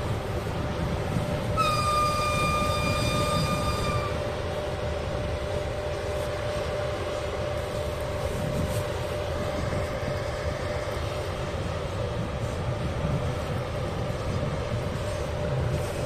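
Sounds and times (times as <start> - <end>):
locomotive hum and rumble: 0.0 - 16.0
locomotive whistle: 1.4 - 4.4.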